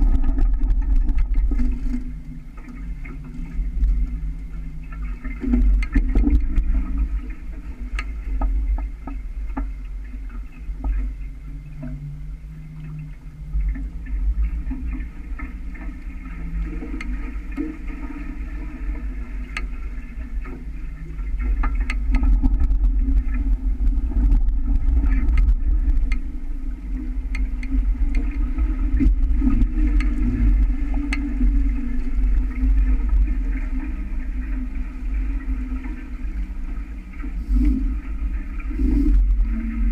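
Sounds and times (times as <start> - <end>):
wind buffeting microphone: 0.0 - 1.9, 22.0 - 35.6
small knocks and ticks: 0.0 - 12.1, 12.8 - 18.2, 18.9 - 26.4, 27.0 - 33.3
water rushing along boat hulls: 0.0 - 39.9.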